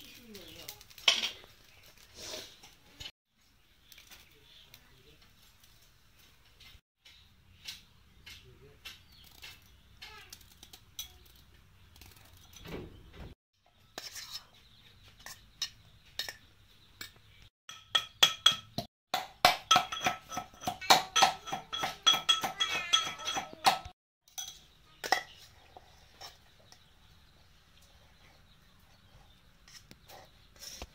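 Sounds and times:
pestle pounding in metal mortar: 17.7s - 23.9s.

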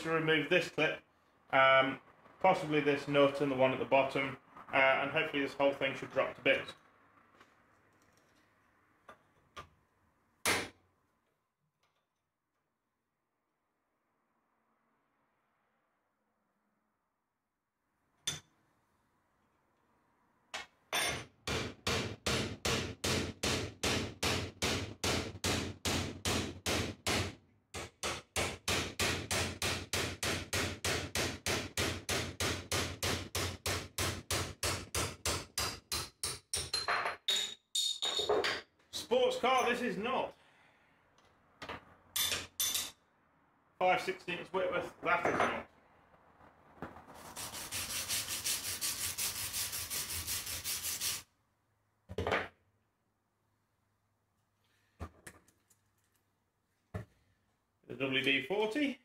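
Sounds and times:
hammer striking chisel on metal: 18.2s - 18.5s, 20.6s - 38.6s, 42.2s - 43.0s.

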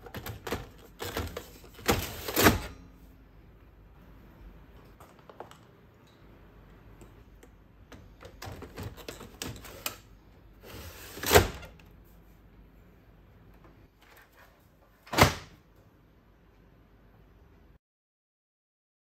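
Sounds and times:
plastic rattling and scraping: 0.0s - 2.7s, 8.2s - 10.1s.

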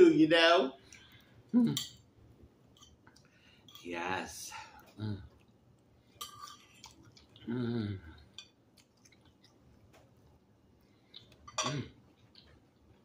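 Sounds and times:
chewing: 4.7s - 13.0s
person humming mm: 7.4s - 8.2s.

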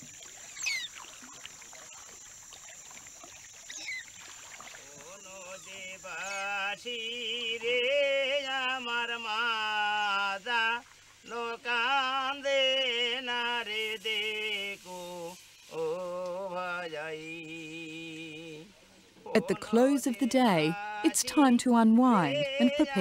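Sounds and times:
person singing slow melody: 5.1s - 23.0s.

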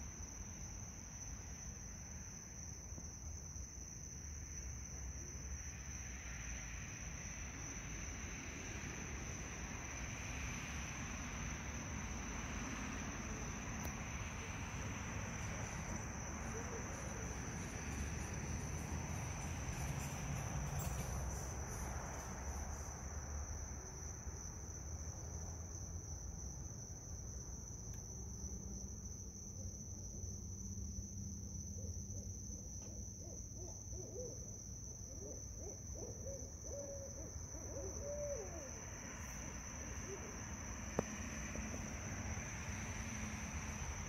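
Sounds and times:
high insect drone: 0.0s - 44.0s
short wavering owl calls: 33.2s - 34.5s, 35.1s - 38.8s
owls hooting: 35.1s - 38.8s.

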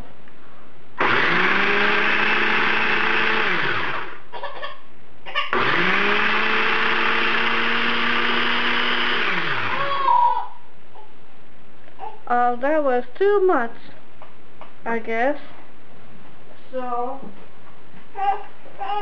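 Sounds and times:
food processor motor: 1.0s - 4.2s, 5.5s - 10.1s.

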